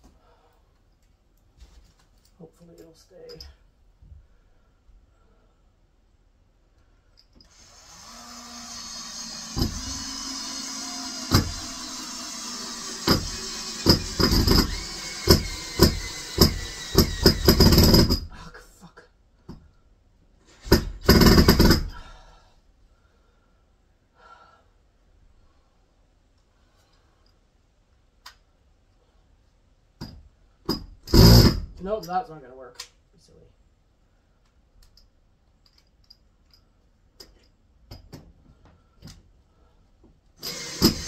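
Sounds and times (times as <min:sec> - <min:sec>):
cordless screwdriver driving screw: 0:07.5 - 0:18.0, 0:40.4 - 0:41.0.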